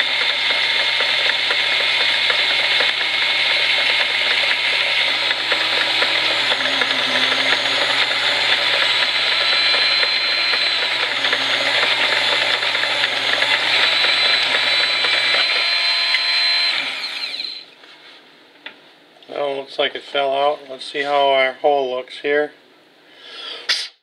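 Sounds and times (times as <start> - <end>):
lathe motor running: 0.0 - 17.6
rotary tool whining: 0.0 - 17.7.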